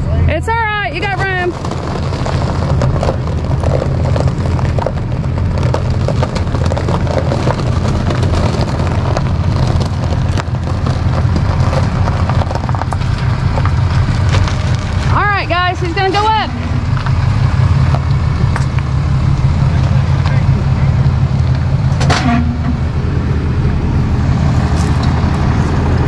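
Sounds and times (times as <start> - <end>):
pickup truck engine rumbling: 0.0 - 26.0
scattered crackling: 0.5 - 26.0.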